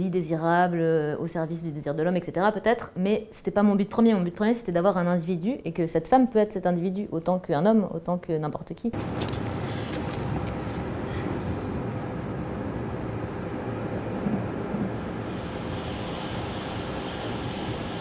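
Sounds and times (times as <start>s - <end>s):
passenger train rumbling: 9.0s - 18.0s.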